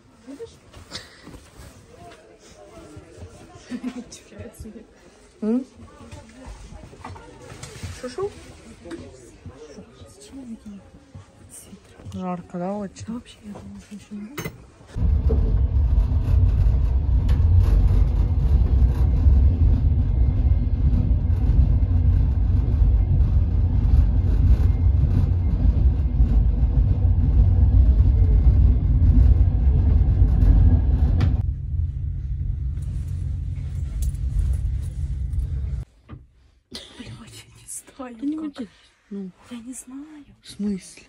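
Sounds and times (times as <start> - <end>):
train rumble inside carriage: 13.0 - 36.0.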